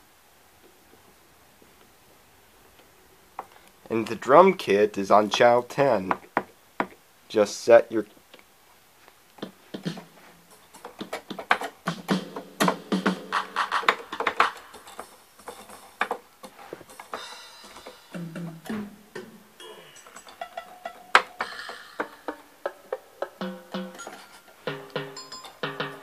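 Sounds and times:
synth notes and percussive hits: 16.9s - 26.0s.

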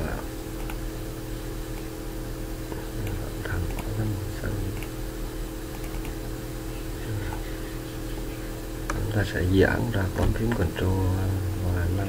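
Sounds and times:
low electrical hum: 0.0s - 12.0s
computer mouse clicks: 0.6s - 0.8s, 2.7s - 3.9s, 5.7s - 6.2s.

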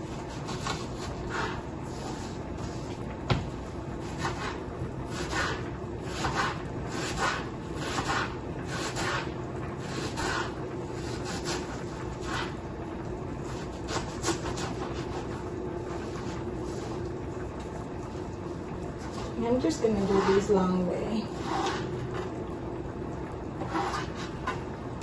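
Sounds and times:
faint hum: 0.0s - 25.0s
knife slicing onion on board: 4.0s - 12.6s, 13.5s - 15.3s.

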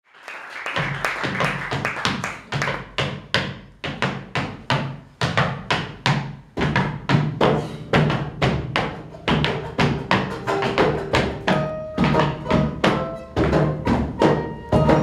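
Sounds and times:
sharp percussive taps: 0.8s - 15.0s
plucked double bass: 6.6s - 15.0s.

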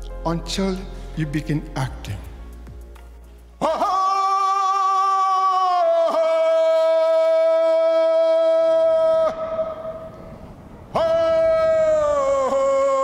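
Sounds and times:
man singing long held call: 3.6s - 9.8s.

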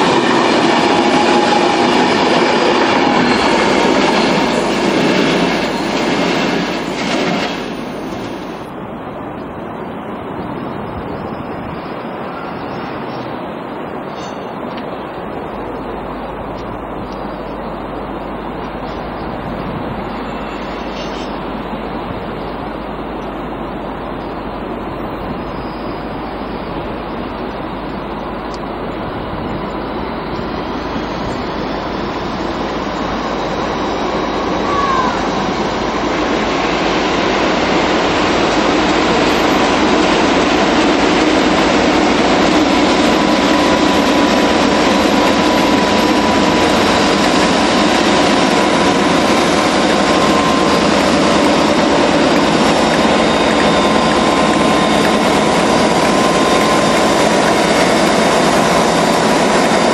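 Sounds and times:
diesel locomotive passing: 0.0s - 59.9s
train noise: 0.0s - 59.9s
brief gliding squeal: 14.1s - 14.6s, 20.0s - 21.5s, 29.8s - 32.0s.

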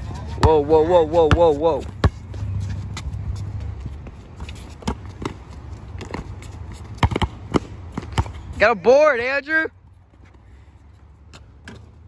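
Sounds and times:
basketball bouncing on hard court: 1.2s - 2.3s, 4.8s - 8.4s
footsteps and sneaker scuffs: 1.7s - 7.0s.

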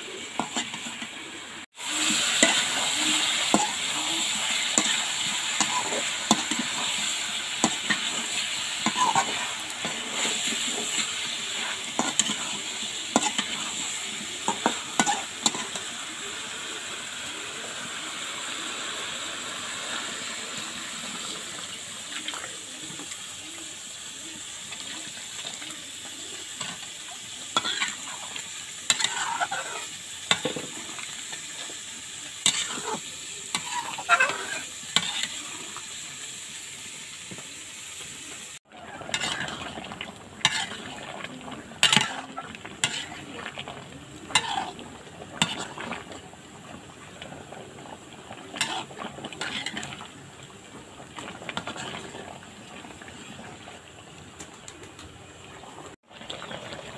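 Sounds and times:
vegetables sizzling in oil: 0.0s - 56.9s
spatula scraping metal pan: 1.9s - 15.8s, 27.5s - 31.1s, 32.4s - 35.4s, 38.9s - 39.8s, 40.4s - 43.4s, 44.2s - 44.8s, 45.4s - 46.0s, 48.5s - 50.0s.

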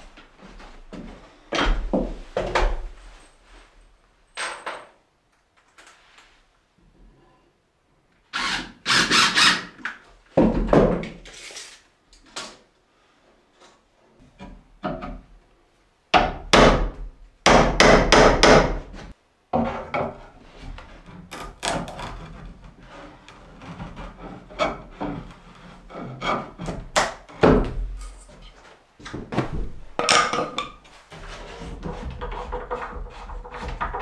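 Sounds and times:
wooden knocks and clatter: 19.5s - 22.4s, 29.0s - 34.0s.

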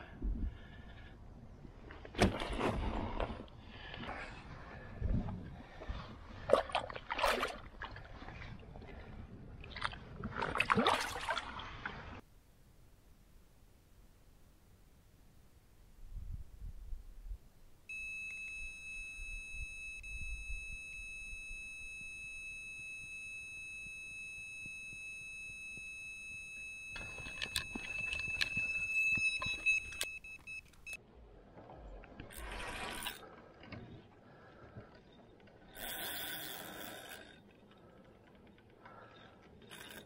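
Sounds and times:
bite alarm high-pitched tone: 17.9s - 30.6s
clicks: 20.9s - 31.0s.

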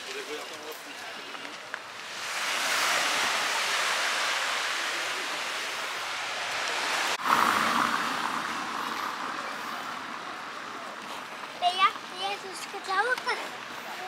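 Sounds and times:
surf breaking on beach: 1.8s - 9.3s.

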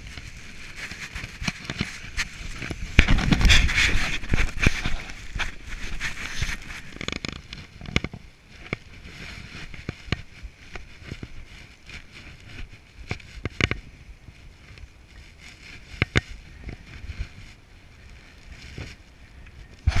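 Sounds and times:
gear knocking and rustling: 0.0s - 13.9s
low hiss: 0.0s - 20.0s.

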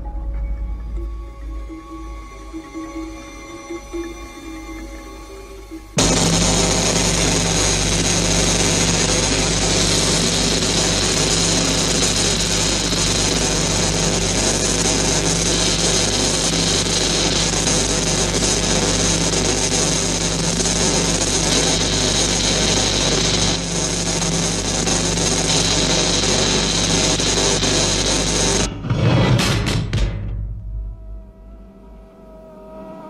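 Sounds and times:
low hum: 0.0s - 33.0s
cutting torch hissing and crackling: 6.0s - 28.7s.

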